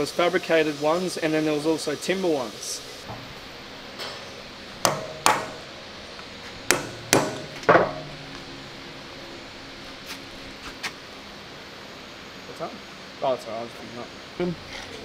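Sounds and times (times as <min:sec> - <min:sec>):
hammer blows on steel: 0:04.8 - 0:05.8, 0:06.7 - 0:08.3.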